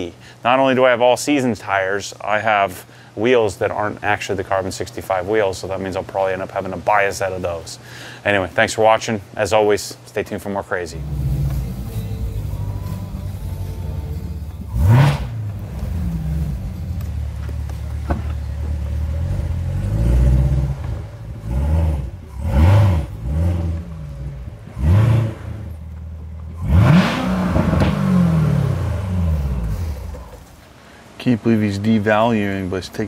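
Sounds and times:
car engine idling and revving: 0:11.0 - 0:30.5.

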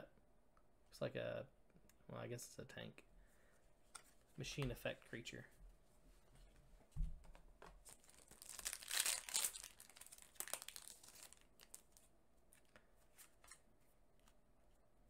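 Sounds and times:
foil wrapper crinkling and tearing: 0:07.9 - 0:12.1.

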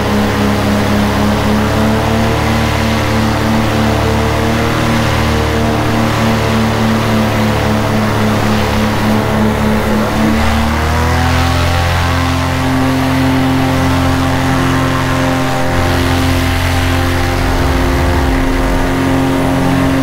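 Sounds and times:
paramotor engine and propeller: 0:00.0 - 0:20.0.

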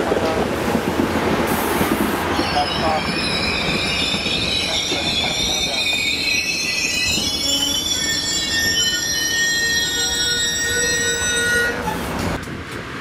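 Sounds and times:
low rumble of rolling train: 0:00.0 - 0:13.0
train wheels squealing: 0:02.3 - 0:12.0.

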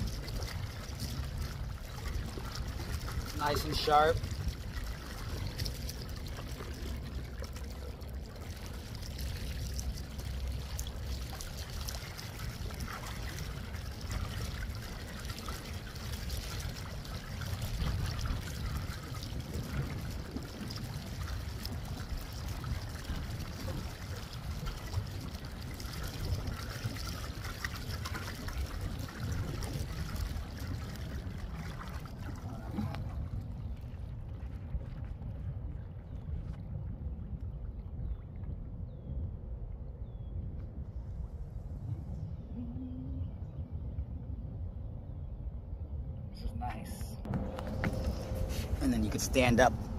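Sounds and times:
water splashing along boat hull: 0:00.0 - 0:38.7, 0:47.2 - 0:49.9
low rumble: 0:00.0 - 0:49.9.

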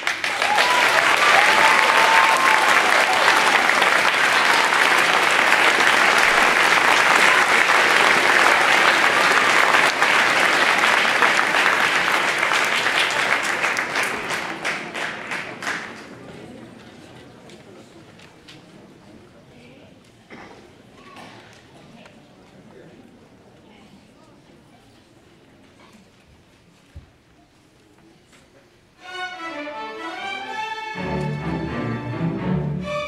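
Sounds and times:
cheers: 0:00.0 - 0:13.4
audience applauding: 0:00.0 - 0:16.6.

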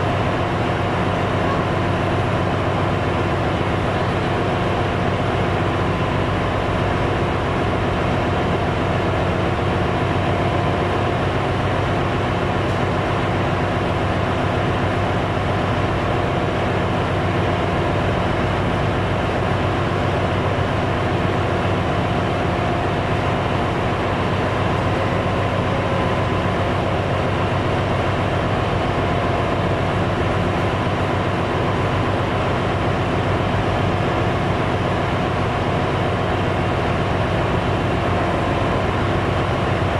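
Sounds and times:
engine-room machinery hum: 0:00.0 - 0:39.9.

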